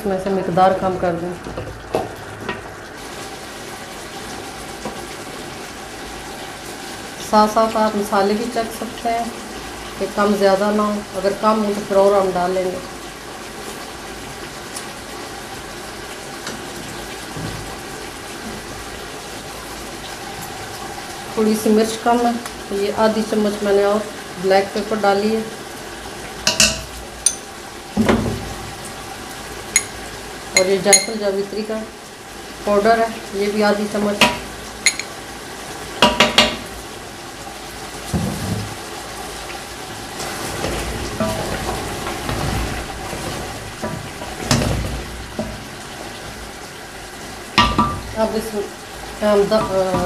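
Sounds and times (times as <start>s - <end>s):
thick gravy bubbling in a pot: 0.4s - 50.0s
utensils knocking: 26.5s - 27.5s, 34.2s - 35.1s, 36.0s - 36.6s, 41.2s - 42.4s, 47.6s - 48.0s.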